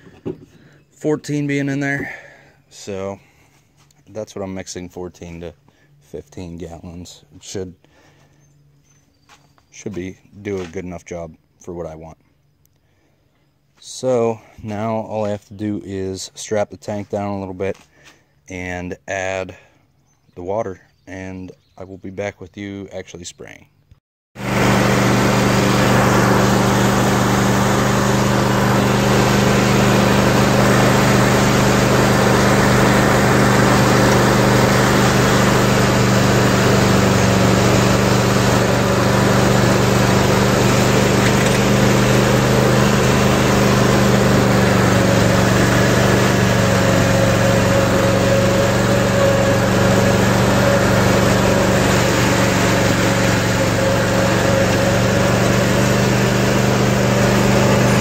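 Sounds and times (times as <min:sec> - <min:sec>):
mower engine running: 0:00.0 - 0:04.0, 0:24.4 - 0:58.0.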